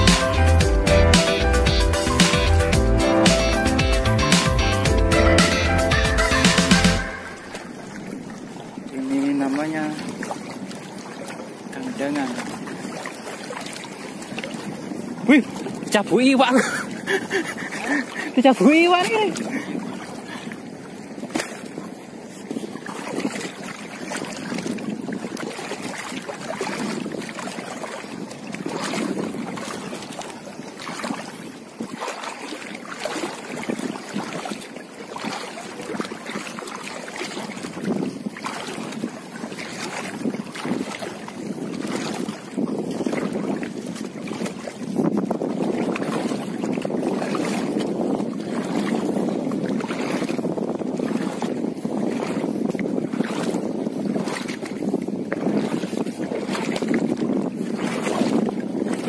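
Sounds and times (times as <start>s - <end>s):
sharp water splashes: 0.0s - 59.0s
legs wading through seawater: 6.2s - 59.0s.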